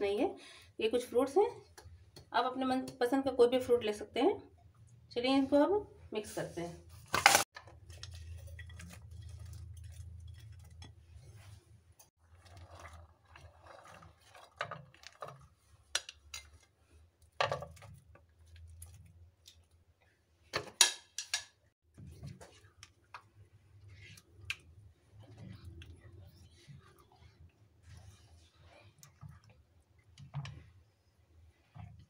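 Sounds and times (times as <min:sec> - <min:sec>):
spoon stirring mixture: 0:07.6 - 0:20.6, 0:21.2 - 0:32.0.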